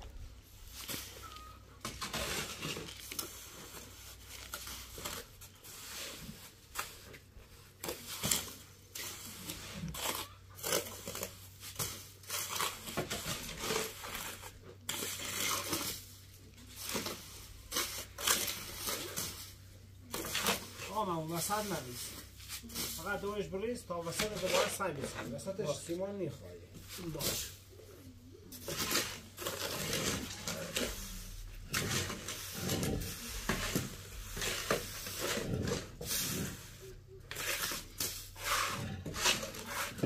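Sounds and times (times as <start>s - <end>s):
rough scraping and crunching: 0.0s - 40.0s.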